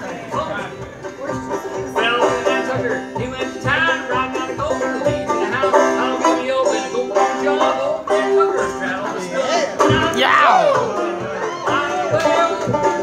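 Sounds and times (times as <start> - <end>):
banjo playing bluegrass tune: 0.0 - 13.0.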